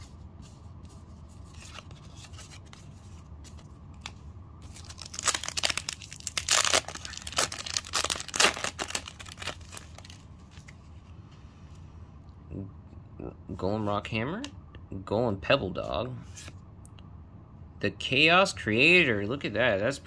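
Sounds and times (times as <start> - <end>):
foil packet rustling: 4.6 - 10.7
foil packet tearing and crinkling: 4.7 - 10.2.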